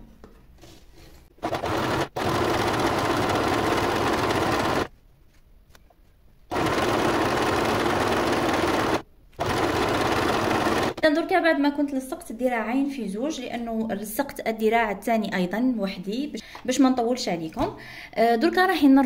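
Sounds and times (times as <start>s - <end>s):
electric sewing machine stitching: 1.4s - 4.9s, 6.5s - 11.0s.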